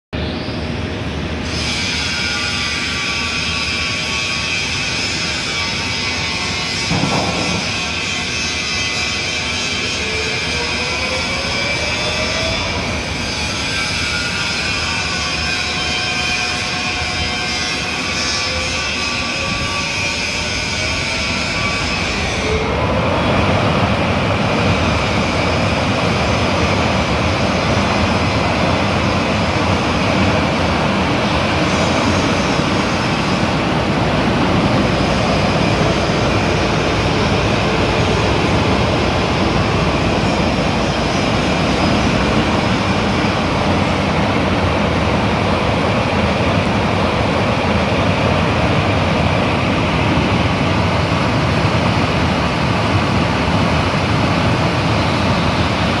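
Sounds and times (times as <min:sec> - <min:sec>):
exhaust fan rushing air: 0:22.5 - 0:56.0.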